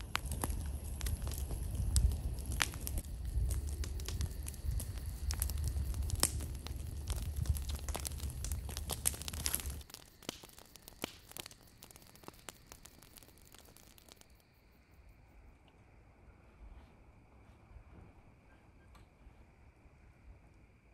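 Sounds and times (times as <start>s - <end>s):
campfire crackling: 0.0s - 15.2s.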